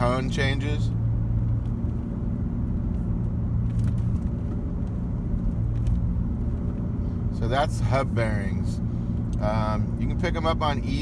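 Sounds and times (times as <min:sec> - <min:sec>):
road noise inside car: 0:00.0 - 0:11.0.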